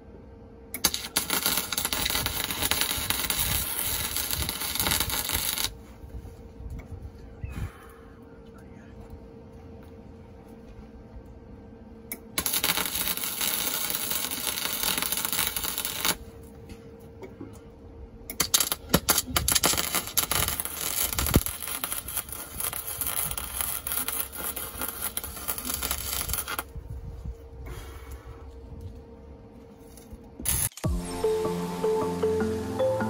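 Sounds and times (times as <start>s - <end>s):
welding pops: 0.7s - 5.8s, 12.1s - 16.2s, 18.3s - 26.7s
welder crackling hiss: 0.8s - 5.8s, 12.4s - 16.2s, 18.4s - 26.7s, 30.5s - 30.8s.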